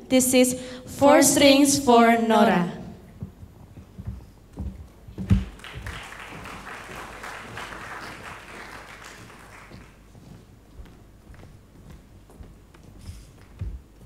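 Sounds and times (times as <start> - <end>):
dull thumps: 3.2 - 6.0
audience applauding: 5.4 - 10.1.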